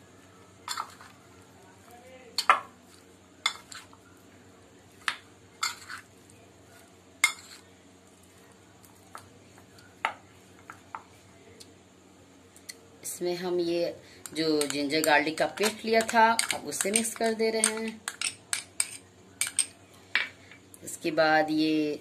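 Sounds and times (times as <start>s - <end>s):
spoon clinking against glass bowl: 15.6s - 19.8s.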